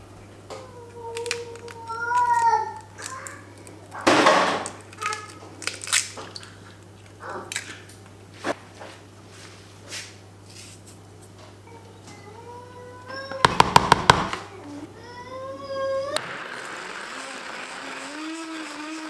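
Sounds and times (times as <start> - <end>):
egg cracking and splatting: 1.1 - 8.1.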